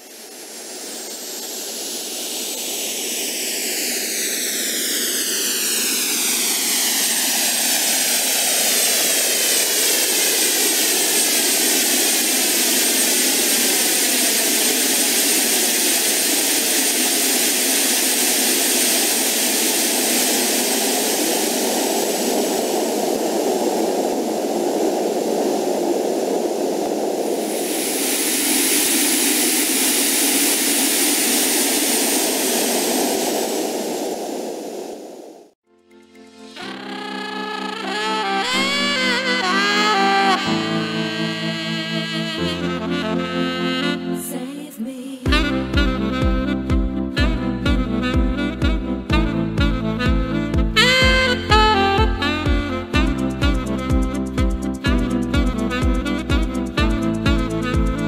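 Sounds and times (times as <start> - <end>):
jet engine rushing and whining: 0.0 - 35.6.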